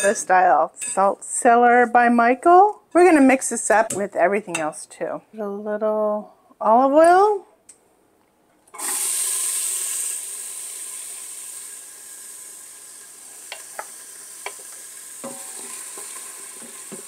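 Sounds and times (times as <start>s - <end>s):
onions sizzling in hot oil: 8.8s - 17.0s.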